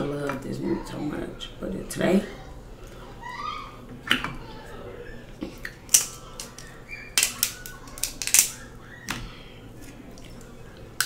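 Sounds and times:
scissors snipping lobster shell: 0:07.2 - 0:08.6.

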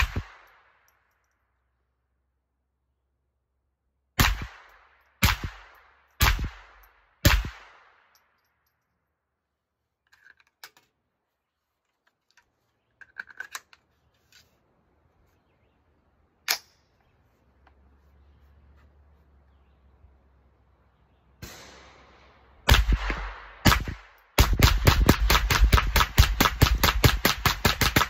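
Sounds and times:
rifle shot: 0:00.0 - 0:00.8, 0:04.2 - 0:08.1, 0:21.4 - 0:28.0.

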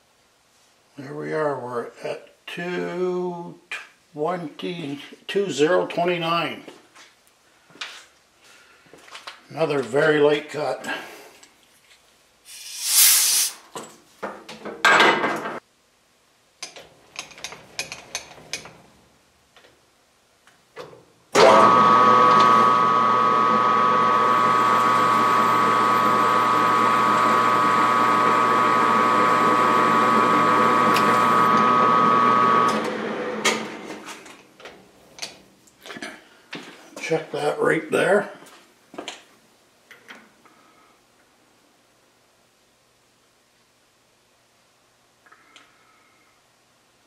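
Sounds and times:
machine tool whining: 0:21.4 - 0:34.1.

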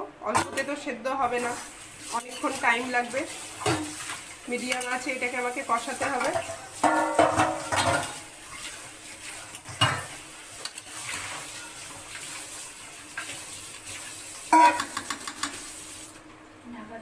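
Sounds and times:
meat and onions sizzling: 0:01.1 - 0:16.3
metal spatula scraping pan: 0:11.0 - 0:12.5.

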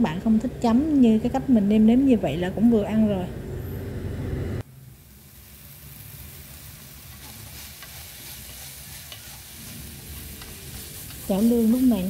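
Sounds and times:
low hum: 0:00.5 - 0:04.9
meat sizzling in a frying pan: 0:04.8 - 0:12.0.

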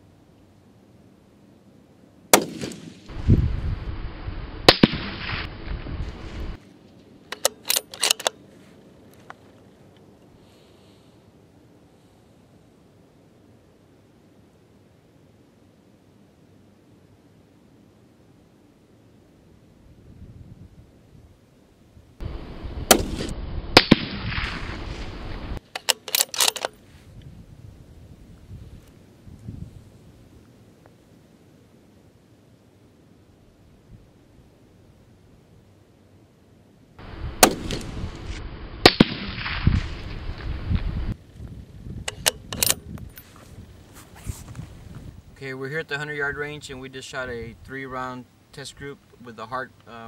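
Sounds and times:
rifle shot: 0:02.3 - 0:03.1, 0:04.7 - 0:05.5, 0:22.8 - 0:25.1, 0:37.4 - 0:38.0, 0:38.8 - 0:39.8
rifle bolt metallic clicks: 0:07.3 - 0:08.4, 0:25.6 - 0:26.8, 0:42.1 - 0:43.2.

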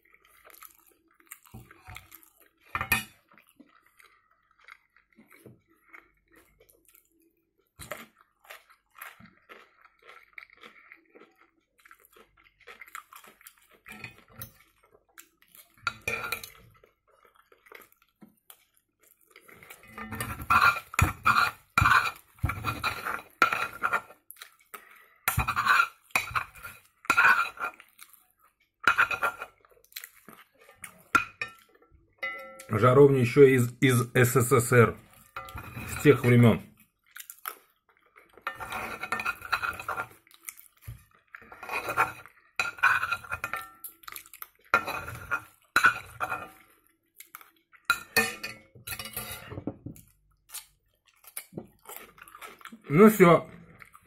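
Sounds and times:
chewing: 0:00.0 - 0:32.6, 0:35.0 - 0:54.0
cutlery scraping cast-iron pan: 0:02.7 - 0:03.1, 0:15.9 - 0:16.6, 0:19.8 - 0:24.1, 0:25.3 - 0:27.8, 0:28.8 - 0:29.5, 0:35.4 - 0:36.4, 0:38.4 - 0:40.1, 0:41.4 - 0:43.8, 0:44.7 - 0:46.6, 0:47.9 - 0:49.8.

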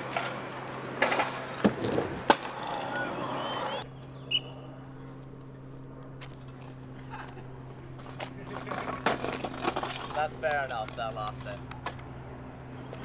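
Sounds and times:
sharp knocks of scooter: 0:00.0 - 0:02.9
scooter wheels rolling on concrete: 0:00.0 - 0:13.0
steady low hum: 0:00.0 - 0:13.0.

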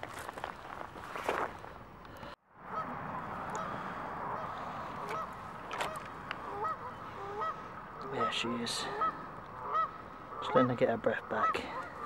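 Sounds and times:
geese honking: 0:02.7 - 0:12.0.

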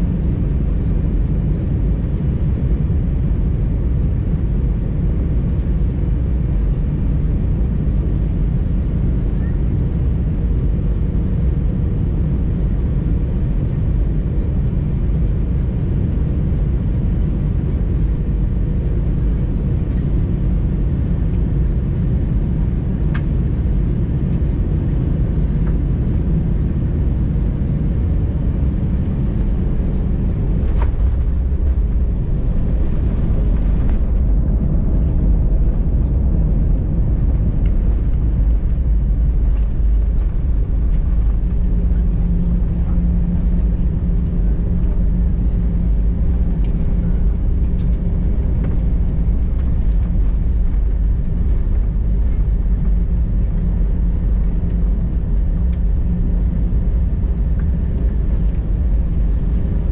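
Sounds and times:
aircraft cabin engine rumble: 0:00.0 - 0:59.9.

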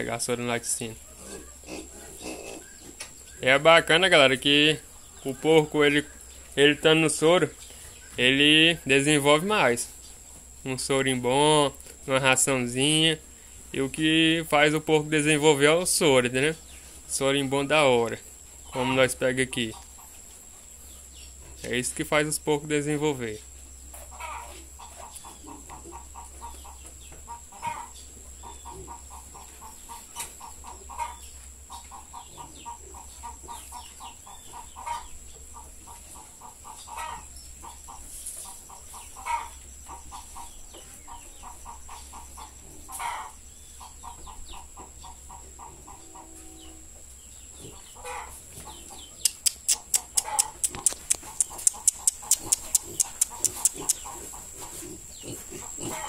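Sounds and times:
loud animal call: 0:24.1 - 0:26.4, 0:27.3 - 0:29.4, 0:36.5 - 0:37.8, 0:39.1 - 0:40.5, 0:41.4 - 0:44.7, 0:49.5 - 0:56.0
sharp clicks: 0:49.2 - 0:54.1.

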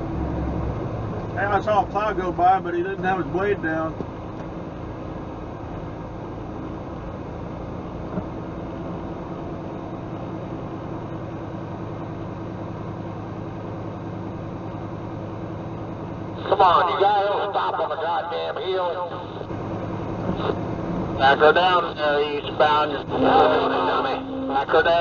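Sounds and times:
truck engine running: 0:00.0 - 0:25.0
tyre and road noise: 0:19.5 - 0:25.0.

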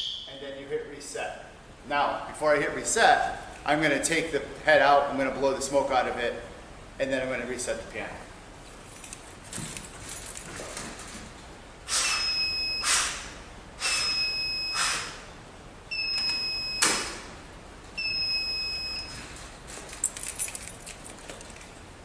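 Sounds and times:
fire alarm beep: 0:00.0 - 0:00.4, 0:12.0 - 0:13.1, 0:13.8 - 0:15.2, 0:15.9 - 0:17.2, 0:18.0 - 0:19.3.

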